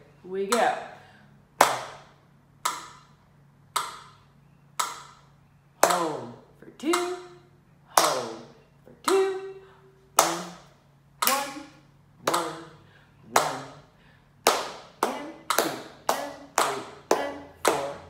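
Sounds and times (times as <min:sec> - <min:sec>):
hand claps: 0:01.6 - 0:02.1, 0:07.9 - 0:08.5, 0:10.2 - 0:11.6, 0:12.2 - 0:13.8, 0:14.4 - 0:18.0.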